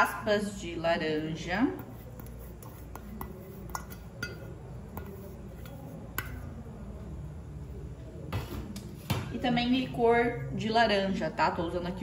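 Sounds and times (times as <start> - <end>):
metal bowl clinking on plastic: 3.0 - 6.5.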